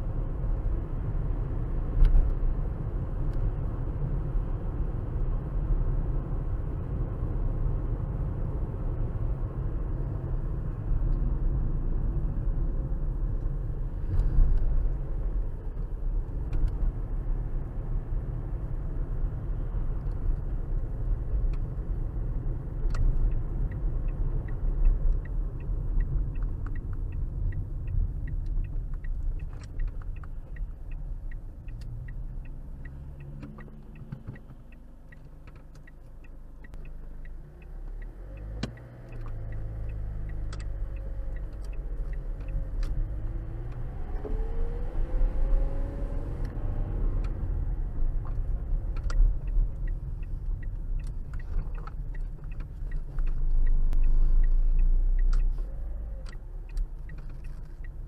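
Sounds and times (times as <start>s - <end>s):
road and engine rumble: 0.0s - 58.0s
turn signal ticking: 0.0s - 58.0s.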